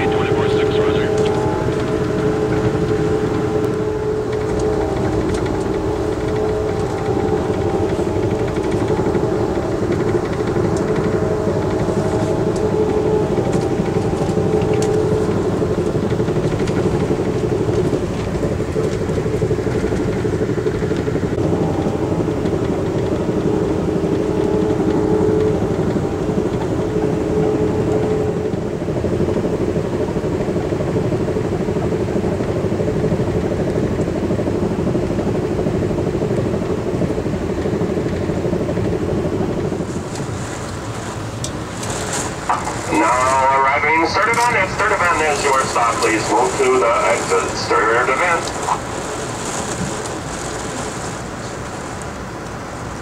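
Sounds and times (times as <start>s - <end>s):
constant hum: 0.0s - 53.0s
train wheels rumbling on track: 0.0s - 53.0s.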